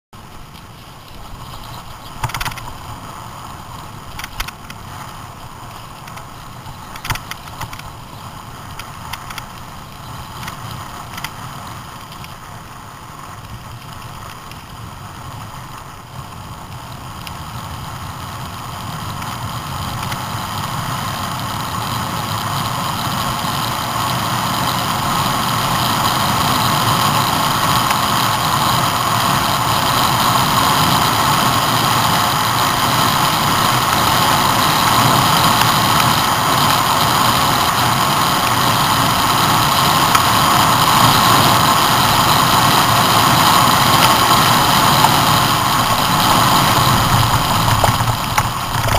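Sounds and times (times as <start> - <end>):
vehicle rumbling on gravel: 0.2 - 48.9.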